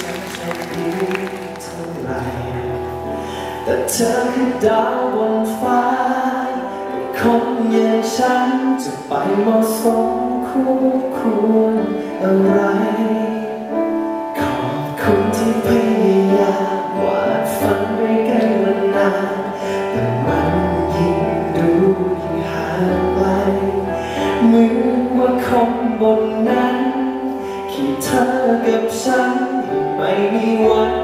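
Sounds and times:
man singing into a microphone: 0.0s - 31.0s
low bass: 19.9s - 26.7s.

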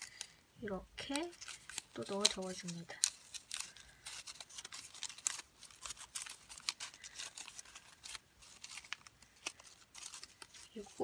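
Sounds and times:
paper rustling and crinkling: 1.0s - 11.0s.

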